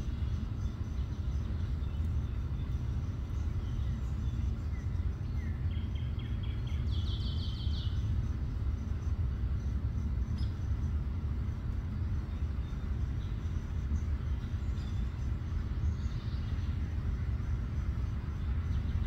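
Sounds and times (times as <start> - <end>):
small bird singing: 0.0 - 9.1, 12.2 - 17.0.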